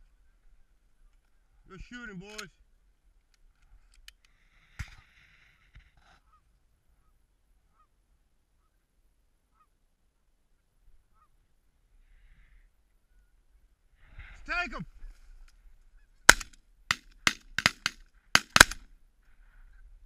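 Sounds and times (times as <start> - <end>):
distant goose honks: 6.1 - 8.0, 9.5 - 9.8, 11.0 - 11.5
sharp knock: 16.3 - 18.8.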